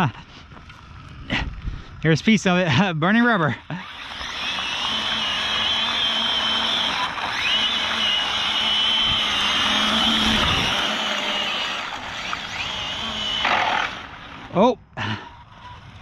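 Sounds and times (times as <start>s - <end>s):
tire noise on asphalt: 0.0s - 3.4s, 11.8s - 16.0s
electric motor whining: 3.6s - 14.6s.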